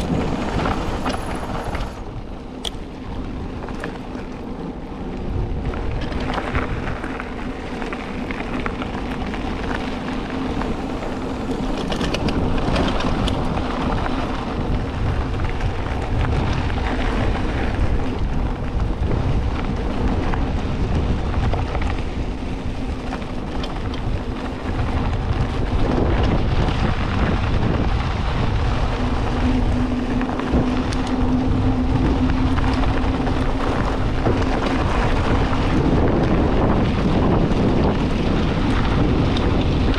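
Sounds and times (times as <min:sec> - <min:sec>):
tyres rolling over loose dirt: 0:00.0 - 0:39.9
wind rushing over microphone: 0:00.0 - 0:39.9
steady buzz: 0:20.4 - 0:39.9.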